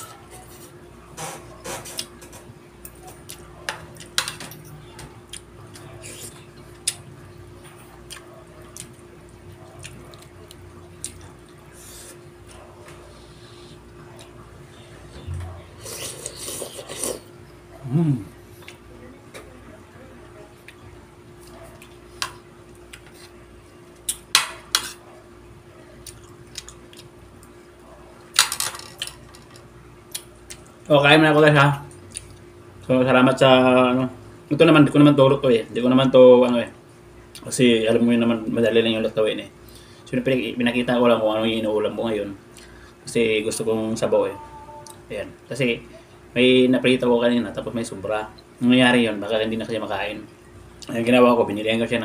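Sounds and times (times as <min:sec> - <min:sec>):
steady low hum: 0:00.0 - 0:52.0
cutlery clinking and scraping plate: 0:24.4 - 0:25.0.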